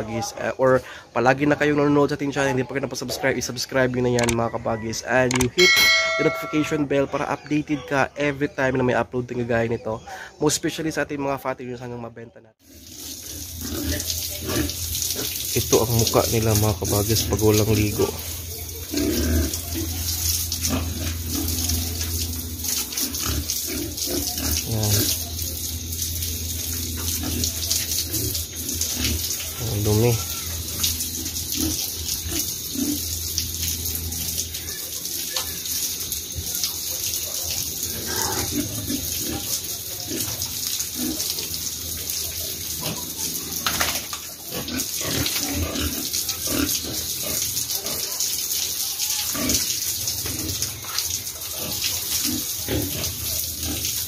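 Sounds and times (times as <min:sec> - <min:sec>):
hose water spraying on concrete: 0:12.6 - 0:54.0
pigs grunting: 0:13.2 - 0:15.5, 0:16.8 - 0:25.6, 0:26.9 - 0:33.2, 0:37.2 - 0:41.6, 0:42.3 - 0:48.2, 0:49.2 - 0:54.0.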